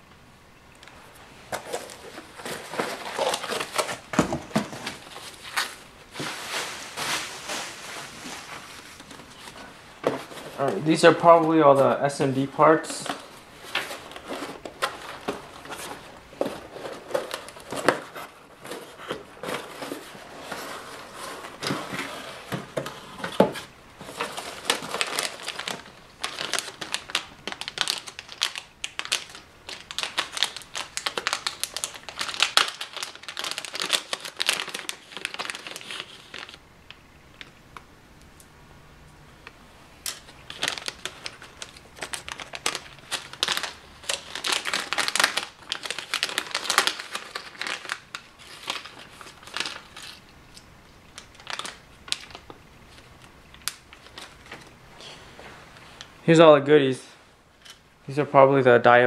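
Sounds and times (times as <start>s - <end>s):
hands rummaging packing peanuts: 1.5s - 36.6s, 40.1s - 50.2s.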